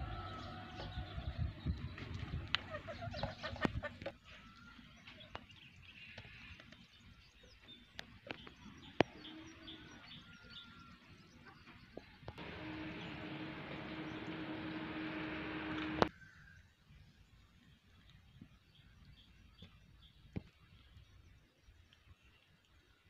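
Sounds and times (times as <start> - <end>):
birds calling and chirping: 0.0 - 16.8.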